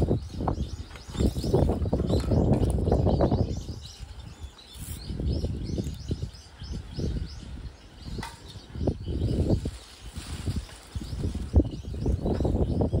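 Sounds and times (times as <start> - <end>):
small birds chirping: 0.0 - 13.0
hands rustling roots: 9.3 - 11.7.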